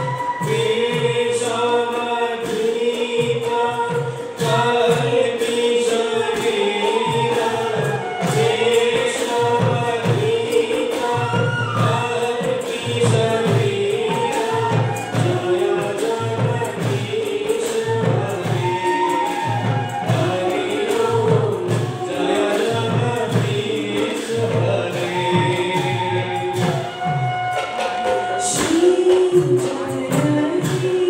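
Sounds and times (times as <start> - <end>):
men singing: 0.0 - 27.4, 28.0 - 31.0
drum beating: 0.0 - 31.0.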